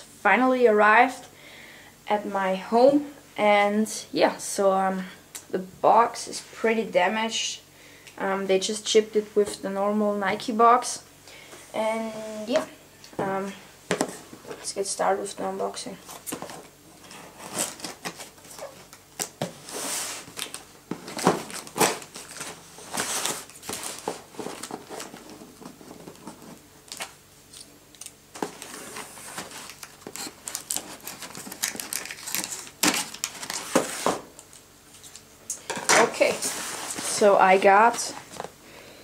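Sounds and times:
tape crinkling: 0:20.2 - 0:35.3.

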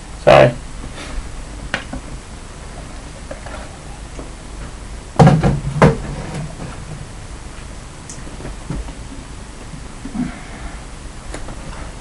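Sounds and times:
hard knocks with low thud: 0:05.2 - 0:06.0.

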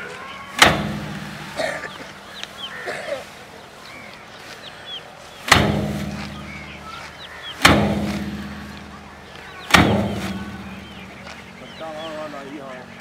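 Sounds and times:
birds chirping: 0:00.0 - 0:13.0
rice stalks striking metal drum: 0:00.6 - 0:01.7, 0:05.4 - 0:11.2.

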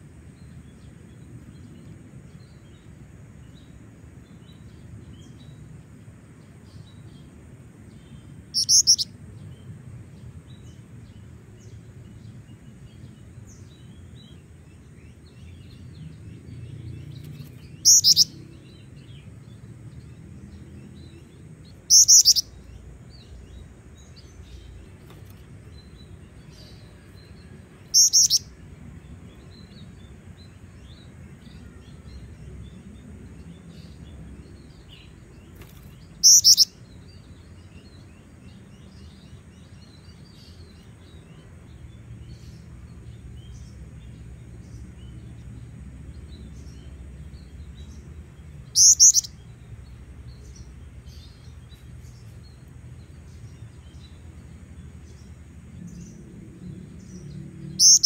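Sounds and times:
faint bird chirps: 0:07.9 - 0:09.6, 0:16.7 - 0:19.2, 0:21.7 - 0:28.6, 0:34.6 - 0:38.0, 0:48.6 - 0:49.7, 0:57.0 - 0:58.0
short high-pitched bird calls: 0:08.6 - 0:09.1, 0:17.8 - 0:18.3, 0:21.9 - 0:22.4, 0:28.0 - 0:28.4, 0:36.2 - 0:36.7, 0:48.8 - 0:49.3.

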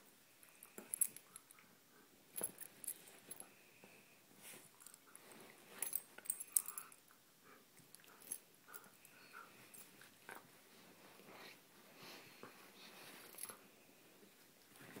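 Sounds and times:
bedding rustling: 0:09.4 - 0:15.0.

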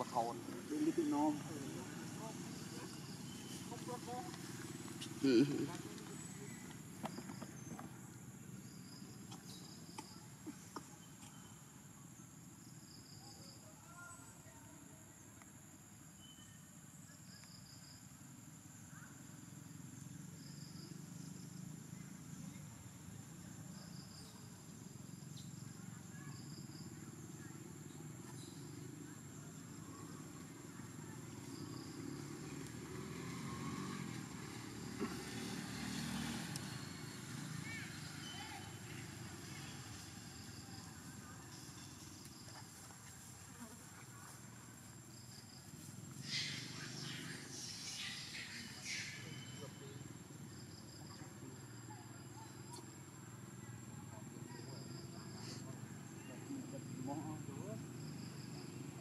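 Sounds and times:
insects chirping: 0:00.0 - 0:59.0
vehicle engine rumbling: 0:28.4 - 0:50.8.

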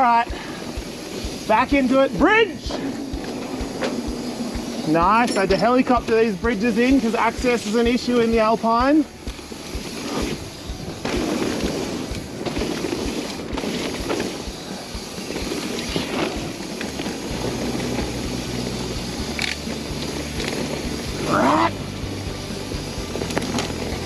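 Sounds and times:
bike knocks and rattles: 0:00.0 - 0:18.6
tyres on dirt: 0:00.0 - 0:24.0.

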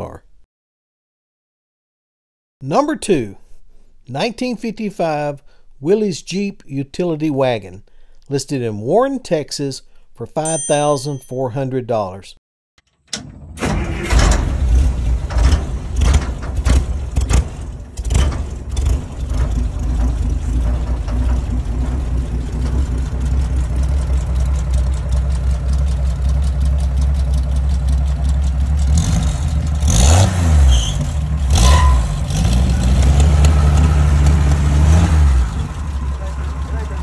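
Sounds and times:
car engine idling and revving: 0:13.6 - 0:37.0.

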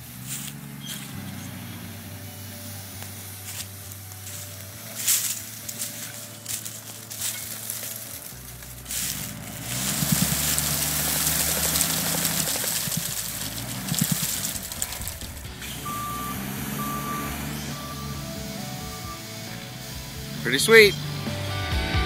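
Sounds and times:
engine revving with rushing hiss: 0:00.0 - 0:21.8
back-up alarm beeping: 0:15.0 - 0:20.2.

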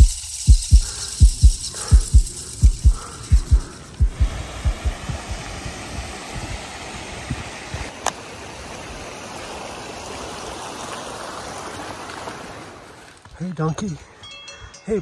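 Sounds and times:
steady rushing hiss: 0:00.0 - 0:13.3
low footfall thuds: 0:00.5 - 0:06.6.

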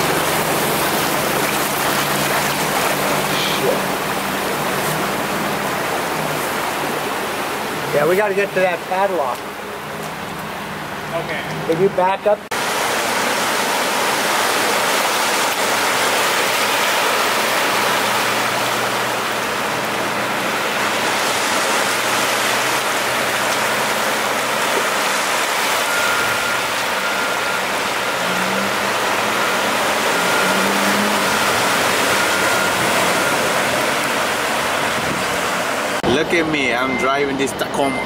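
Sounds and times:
floodwater rushing: 0:00.0 - 0:38.0
faint repeated beeping: 0:36.6 - 0:38.0.

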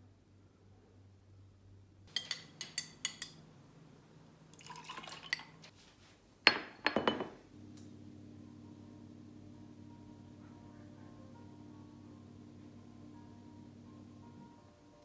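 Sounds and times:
kitchenware clinking: 0:02.1 - 0:03.4, 0:04.6 - 0:05.7, 0:06.5 - 0:07.4
rustling noise: 0:05.6 - 0:06.3
kitchenware knocking: 0:06.5 - 0:07.4.

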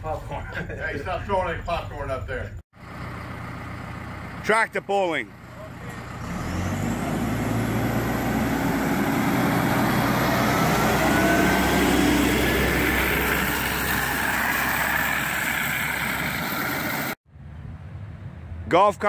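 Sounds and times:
diesel engine running: 0:02.2 - 0:17.2.

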